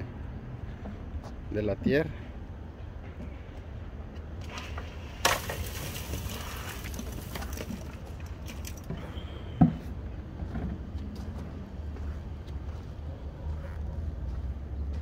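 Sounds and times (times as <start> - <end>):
footsteps crunching on dirt: 10.9 - 15.0.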